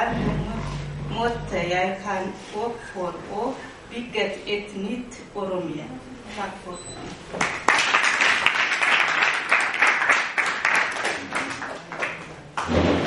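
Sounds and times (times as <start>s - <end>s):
crowd applauding: 7.4s - 12.2s.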